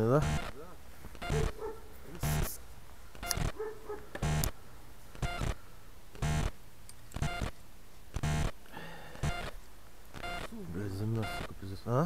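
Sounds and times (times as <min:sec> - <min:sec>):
dog barking: 0:01.3 - 0:02.0, 0:03.5 - 0:04.2.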